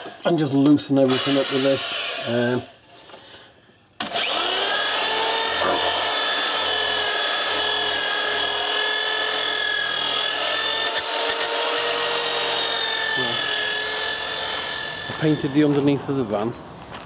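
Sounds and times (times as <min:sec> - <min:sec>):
electric drill running: 0:01.0 - 0:02.6, 0:04.0 - 0:15.8.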